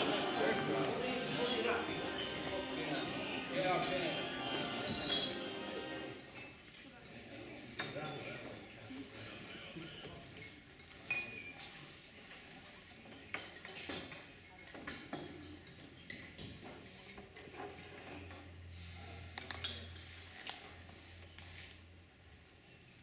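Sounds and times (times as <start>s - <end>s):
china teacups clinking: 0.0s - 6.8s.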